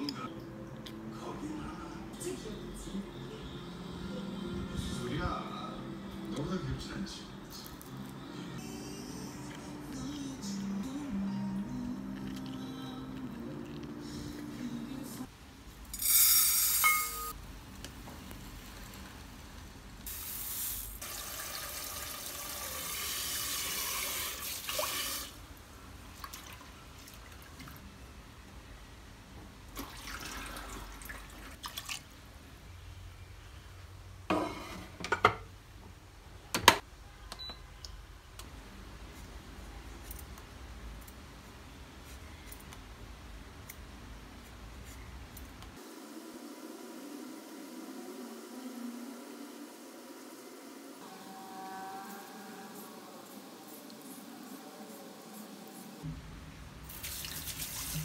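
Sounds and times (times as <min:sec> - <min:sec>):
tap water running into pot: 0:21.0 - 0:25.4.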